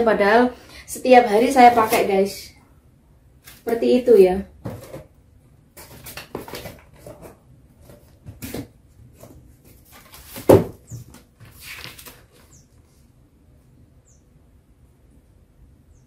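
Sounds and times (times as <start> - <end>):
cardboard and paper rustling: 1.5 - 2.2, 3.4 - 3.8, 4.6 - 13.0
box thump: 4.6 - 5.1, 10.2 - 11.1.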